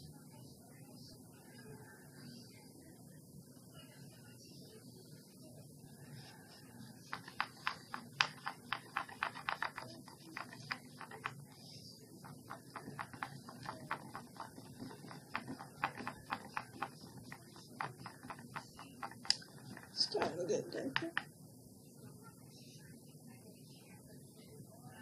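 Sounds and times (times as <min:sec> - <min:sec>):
stick clicking against bowl: 0:07.1 - 0:11.6, 0:12.2 - 0:21.3.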